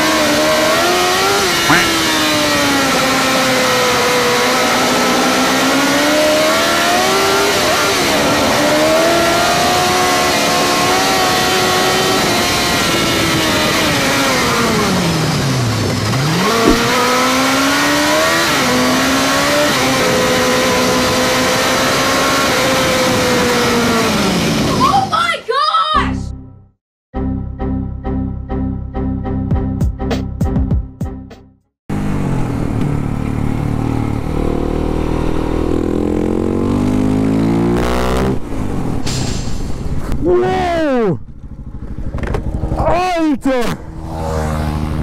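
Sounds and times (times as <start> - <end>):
motorcycle engine revving: 0.0 - 24.8, 31.9 - 39.0, 40.8 - 43.0, 43.6 - 45.0.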